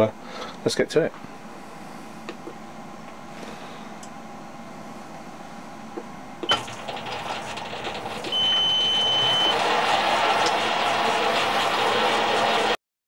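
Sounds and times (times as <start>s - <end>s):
lathe running: 6.6s - 12.8s
high beep: 8.4s - 9.6s.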